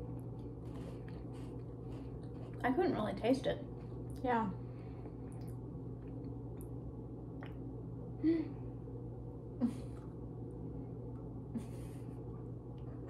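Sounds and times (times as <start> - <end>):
low room hum: 0.0 - 13.0
person humming mm: 8.2 - 8.6.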